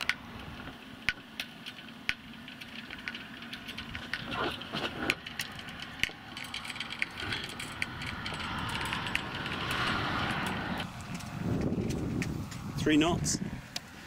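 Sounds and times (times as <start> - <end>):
rigging fittings clicking and rattling: 0.0 - 12.7
steady rushing noise: 6.0 - 14.0.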